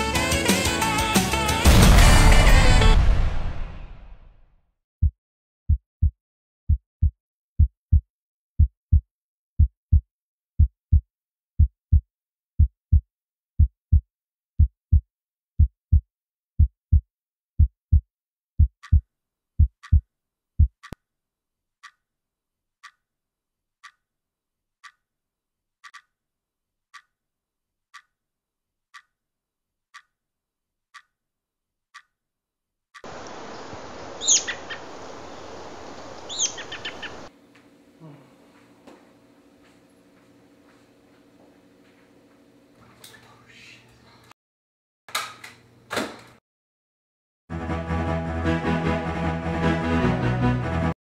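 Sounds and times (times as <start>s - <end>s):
heartbeat thumps: 5.0s - 8.0s, 8.6s - 9.0s, 9.6s - 10.0s, 11.6s - 12.0s, 12.6s - 13.0s, 15.6s - 16.0s, 16.6s - 17.0s, 17.6s - 18.0s, 18.6s - 19.0s, 19.6s - 20.0s, 20.6s - 20.8s
clock ticking: 18.6s - 19.0s, 19.6s - 20.0s, 20.6s - 21.0s, 23.8s - 24.0s, 24.8s - 25.0s, 25.8s - 26.1s, 26.9s - 27.1s, 27.9s - 28.1s, 28.9s - 29.1s, 29.9s - 30.1s, 30.9s - 31.1s, 31.9s - 32.1s.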